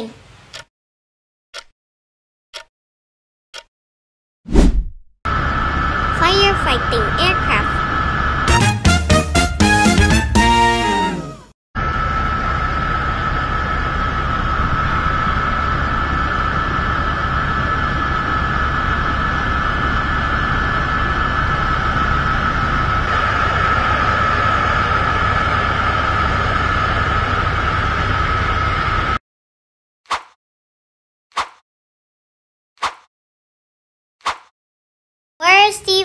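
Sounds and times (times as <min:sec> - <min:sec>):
turboprop engines whining: 0:05.3 - 0:29.2.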